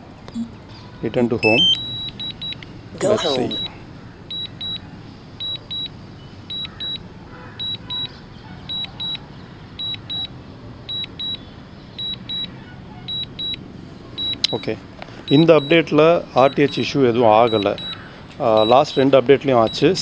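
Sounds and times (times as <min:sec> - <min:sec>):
short high beeps: 0:01.4 - 0:04.8, 0:17.5 - 0:18.0, 0:18.6 - 0:19.1.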